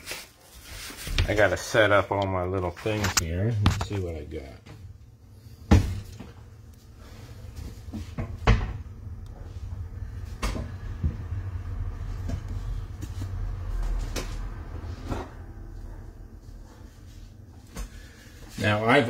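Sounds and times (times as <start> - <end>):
cabinet door opening and shutting: 8.0 - 8.9.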